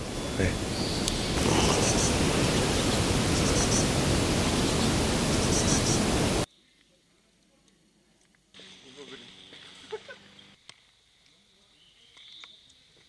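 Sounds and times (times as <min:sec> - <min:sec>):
loud rushing hiss: 0:00.0 - 0:06.5.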